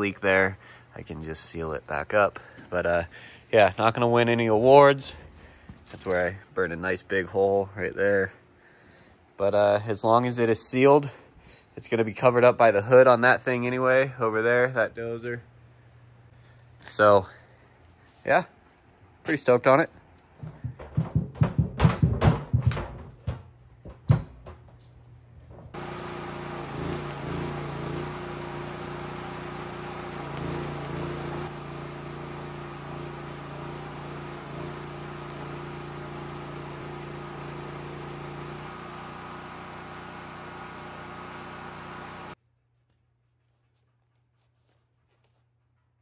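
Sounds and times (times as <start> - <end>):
thumps on sheet-metal tank: 20.5 - 24.5
welding arc crackling: 25.8 - 42.4.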